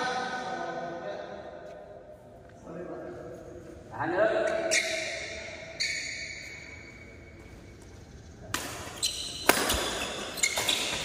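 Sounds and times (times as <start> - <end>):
badminton racket hitting shuttlecock: 8.5 - 11.0.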